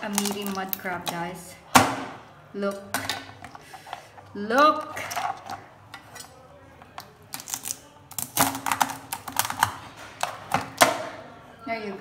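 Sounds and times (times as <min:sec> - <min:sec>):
crab shell cracking by hand: 0:07.3 - 0:09.7.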